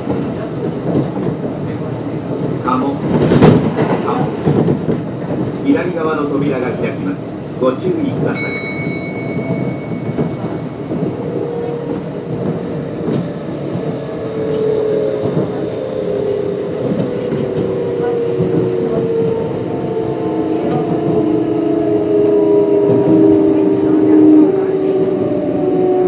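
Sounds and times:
wheel and rail rumble: 0:00.0 - 0:26.0
high ringing tone: 0:08.4 - 0:11.2.

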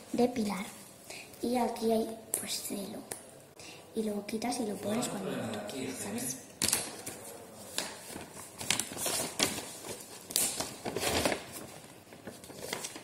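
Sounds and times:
paper rustling and crinkling: 0:06.7 - 0:13.0.

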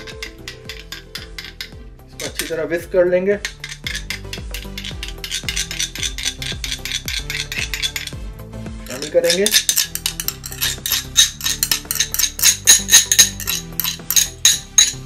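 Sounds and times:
spoon clinking against glass bowl: 0:03.4 - 0:08.2, 0:08.9 - 0:15.0.

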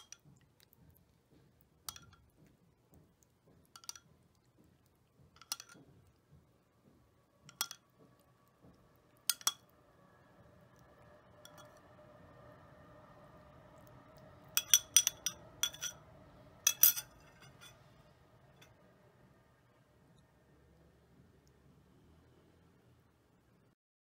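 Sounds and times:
metal spoon clinking on glass: 0:01.9 - 0:02.2, 0:03.8 - 0:04.1, 0:05.4 - 0:05.9, 0:07.5 - 0:07.8, 0:09.3 - 0:09.7, 0:11.4 - 0:11.8, 0:14.5 - 0:16.0, 0:16.6 - 0:17.9.

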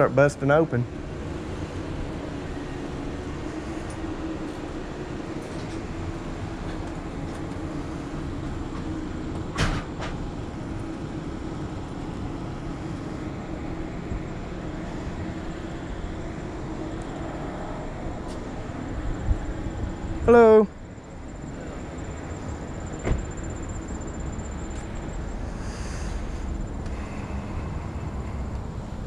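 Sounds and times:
steady mechanical hum: 0:00.0 - 0:29.0
background rush: 0:24.2 - 0:29.0.

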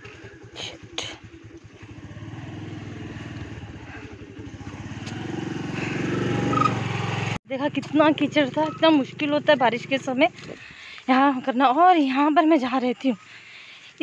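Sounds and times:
scooter engine running: 0:00.0 - 0:10.9.

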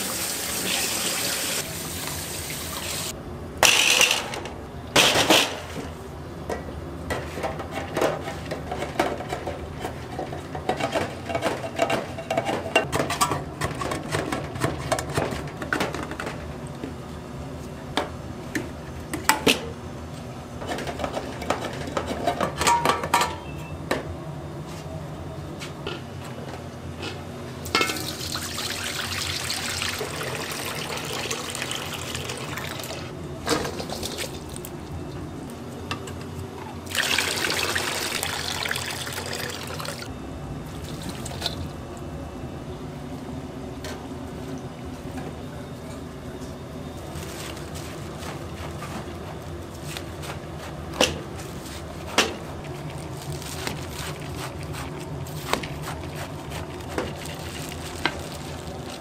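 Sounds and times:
liquid pouring: 0:36.9 - 0:40.1.

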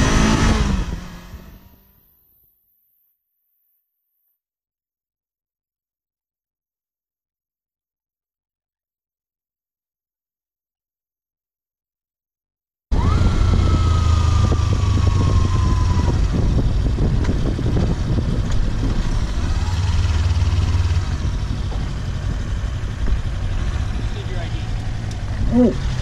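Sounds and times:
motorcycle engine running: 0:12.9 - 0:26.0
wind rushing over microphone: 0:12.9 - 0:26.0.

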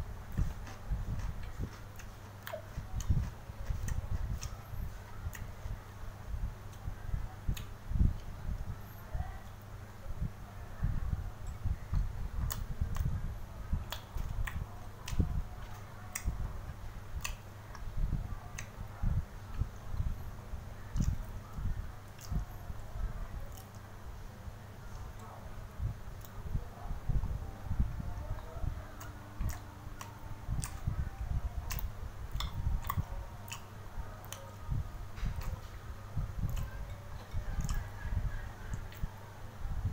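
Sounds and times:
person chewing with lip smacks: 0:00.3 - 0:05.8, 0:11.5 - 0:13.2, 0:13.9 - 0:16.4, 0:20.9 - 0:21.3, 0:29.0 - 0:30.9, 0:31.6 - 0:34.5, 0:36.4 - 0:37.9.

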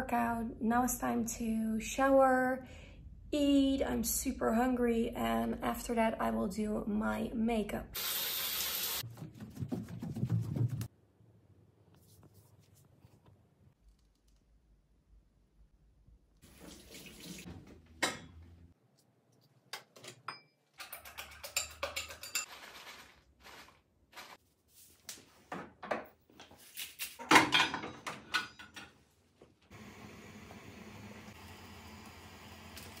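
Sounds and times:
water running at sink: 0:08.0 - 0:09.0, 0:16.4 - 0:17.7
dishes and frying pan clattering: 0:27.2 - 0:29.0.

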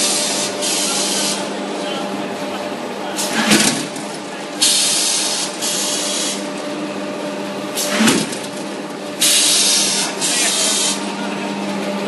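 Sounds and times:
machine humming: 0:00.0 - 0:12.0.

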